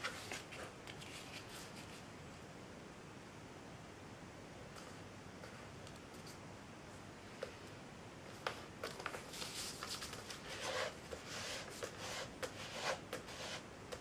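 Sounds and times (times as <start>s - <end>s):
paper being folded and creased: 8.5s - 12.9s.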